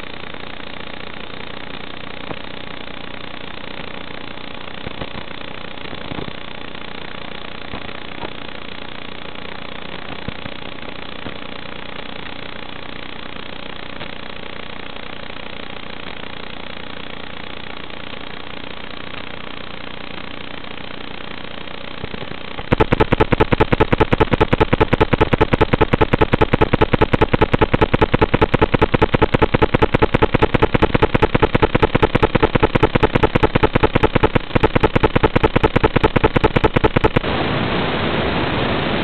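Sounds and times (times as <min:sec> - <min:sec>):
fast electronic clicking: 0:22.0 - 0:37.3.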